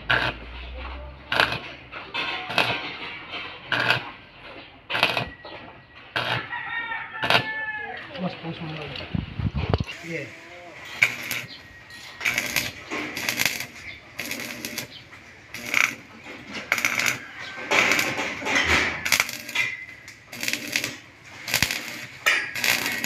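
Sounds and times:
welding arc crackling: 0:00.0 - 0:00.6, 0:01.2 - 0:01.9, 0:02.5 - 0:02.9, 0:03.7 - 0:04.1, 0:04.9 - 0:05.3, 0:06.1 - 0:06.5, 0:07.2 - 0:07.5, 0:09.8 - 0:23.0.

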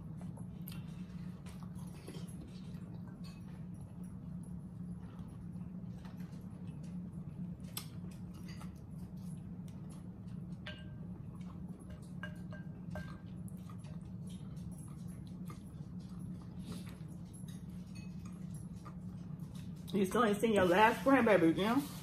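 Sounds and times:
chewing and slurping: 0:00.0 - 0:21.0
spoons clinking against glass bowls: 0:10.6 - 0:11.0, 0:11.8 - 0:13.3.

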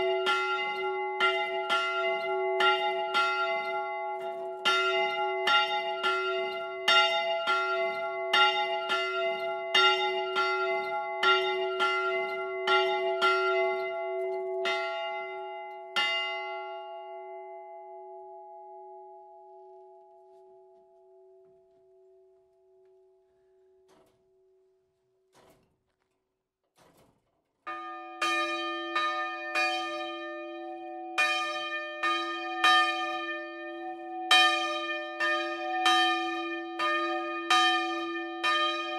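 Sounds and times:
lower bell ringing: 0:00.0 - 0:24.8
church bell ringing: 0:00.0 - 0:25.0, 0:27.7 - 0:38.9.

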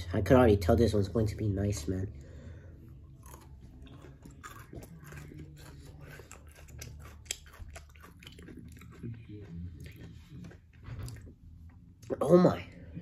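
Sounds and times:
chocolate bar crunching: 0:03.1 - 0:11.3.

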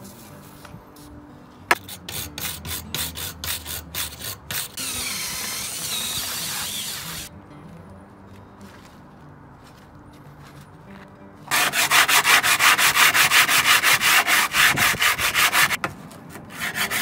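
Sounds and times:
wire brush scrubbing rusty metal: 0:01.7 - 0:07.3, 0:11.5 - 0:17.0
cordless drill whirring on metal: 0:04.8 - 0:07.3.

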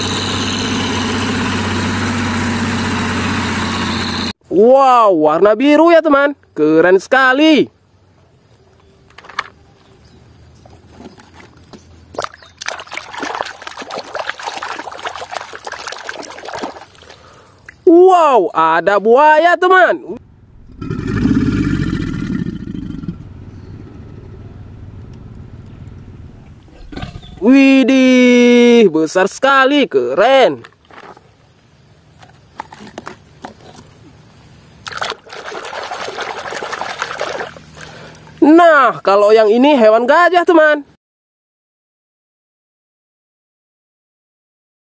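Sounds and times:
muddy water sloshing in basin: 0:10.7 - 0:17.8, 0:34.8 - 0:38.4.

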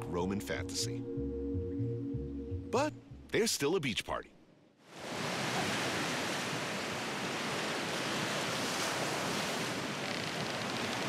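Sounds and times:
sea surf washing onto beach: 0:04.9 - 0:11.0.

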